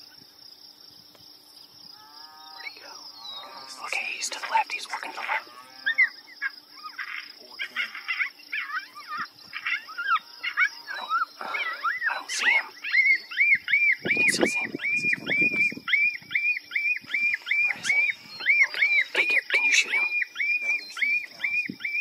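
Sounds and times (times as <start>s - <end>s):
high animal chirps: 2.5s - 22.0s
high animal yelping: 5.0s - 22.0s.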